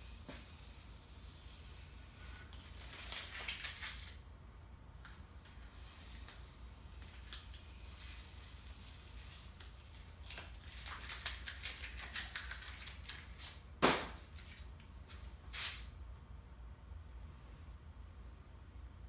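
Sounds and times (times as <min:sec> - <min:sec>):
masking tape peeling and crinkling: 0:02.2 - 0:04.2, 0:05.2 - 0:14.8.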